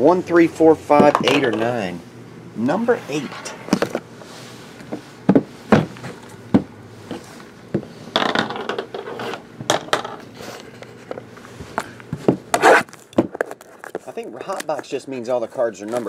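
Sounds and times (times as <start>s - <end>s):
boxes scraping: 2.7s - 6.3s, 12.5s - 14.6s
boxes knocking on table: 5.3s - 6.7s.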